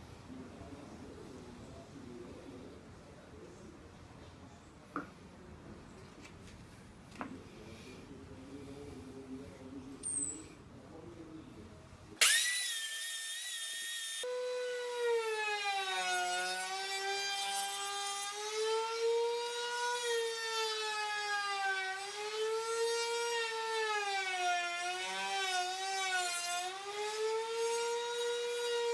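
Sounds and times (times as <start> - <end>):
wood router whining: 12.2 - 28.9.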